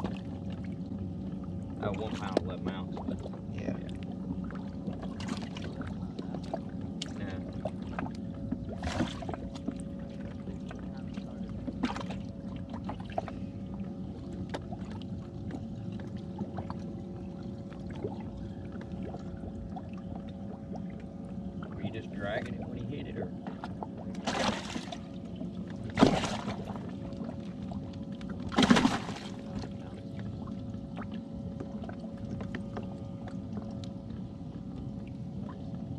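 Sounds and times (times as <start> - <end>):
electric boat motor humming: 0.0 - 35.9.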